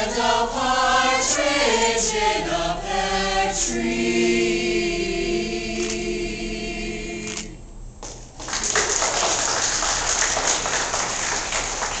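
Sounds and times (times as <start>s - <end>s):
choir singing a held chord: 0.0s - 7.6s
audience applause: 8.4s - 12.0s.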